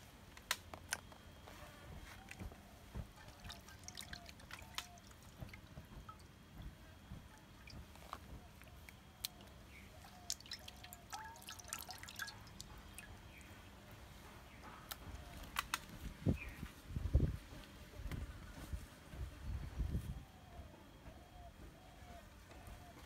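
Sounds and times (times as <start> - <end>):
wet ticks of fish fillets handled: 3.1 - 6.3.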